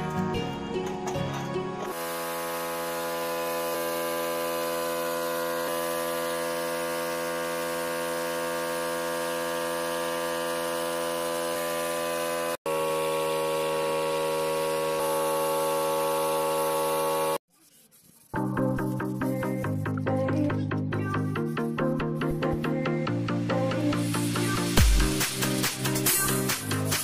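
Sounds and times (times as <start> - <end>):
air compressor humming: 1.1 - 17.4.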